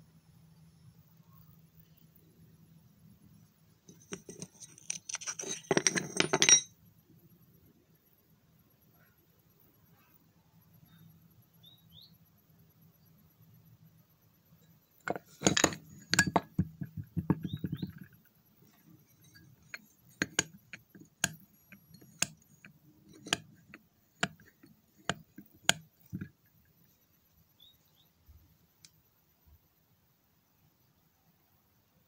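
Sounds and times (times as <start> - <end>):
metal parts set on wooden bench: 3.9 - 6.8, 14.6 - 27.0.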